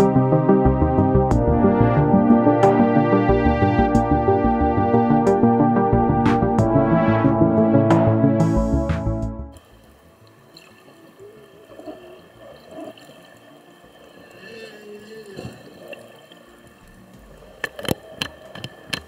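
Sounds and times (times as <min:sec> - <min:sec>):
whale song underwater: 0:10.2 - 0:19.0.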